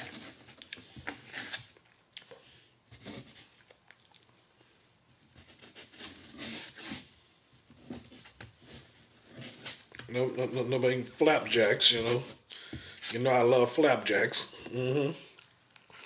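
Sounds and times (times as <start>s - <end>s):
soft chewing: 0.0s - 6.5s, 14.6s - 16.0s.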